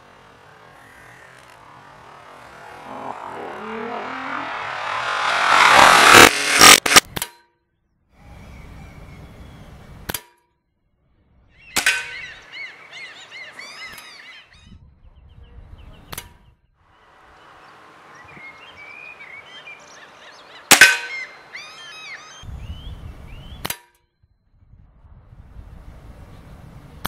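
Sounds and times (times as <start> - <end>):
chirping sounds: 0.0 - 7.0, 11.6 - 16.4, 17.2 - 23.7.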